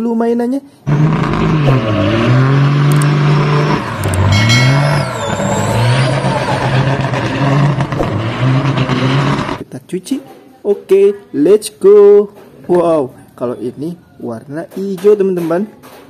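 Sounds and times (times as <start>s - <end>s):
diesel truck engine revving: 0.8s - 9.6s.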